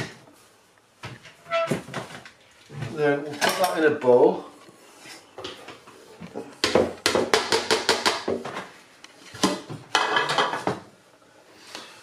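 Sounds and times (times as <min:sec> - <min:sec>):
plastic bowls knocking together: 0:06.7 - 0:08.6.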